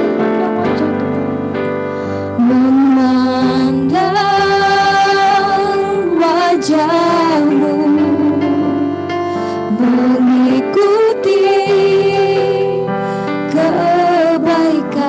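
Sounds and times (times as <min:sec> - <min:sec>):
keyboard accompaniment: 0:00.0 - 0:15.0
women singing worship song: 0:02.4 - 0:09.1, 0:09.7 - 0:15.0.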